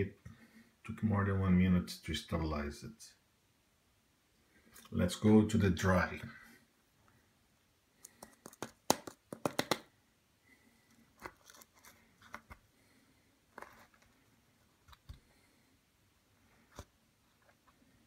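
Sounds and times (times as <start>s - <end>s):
soft clicks and scrapes: 10.8s - 12.7s, 13.5s - 15.4s.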